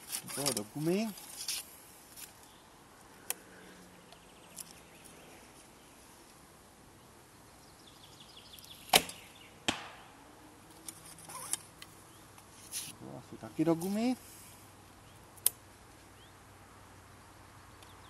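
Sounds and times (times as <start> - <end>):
arrow hitting target: 8.9 - 10.2.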